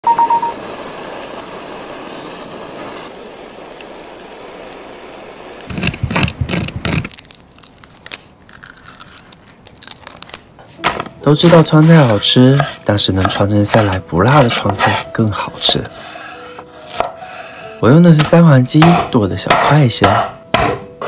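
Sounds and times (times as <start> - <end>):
steady hiss: 0.1 - 6.3
garlic skin crackling as peeled: 5.1 - 10.6
loud crunching: 5.7 - 10.5.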